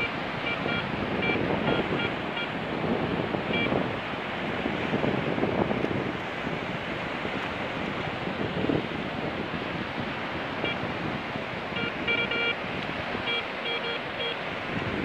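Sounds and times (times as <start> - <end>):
metal detector beeping: 0.0 - 2.5, 3.5 - 3.7, 10.6 - 10.8, 11.8 - 12.6, 13.2 - 14.4
surf washing on shore: 0.0 - 15.0
wind on microphone: 0.0 - 15.0.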